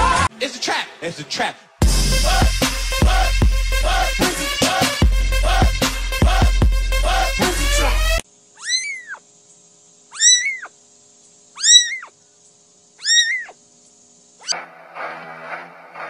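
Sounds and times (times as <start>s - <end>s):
kitten meowing: 8.6s - 9.2s, 10.1s - 10.7s, 11.6s - 12.1s, 13.0s - 13.6s.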